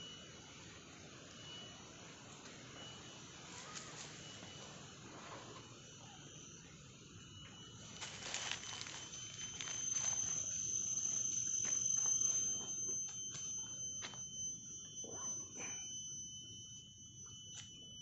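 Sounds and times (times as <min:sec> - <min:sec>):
insects whining: 0:00.0 - 0:18.0
rummaging in a backpack: 0:08.0 - 0:11.8.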